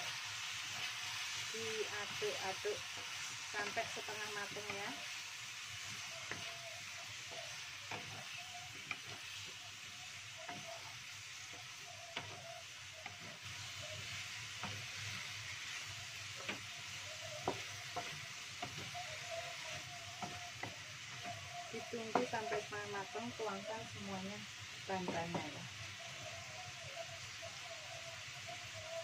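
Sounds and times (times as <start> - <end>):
food sizzling in oil in a wok: 0.0 - 29.0
wooden spatula scraping a pan: 5.8 - 24.0.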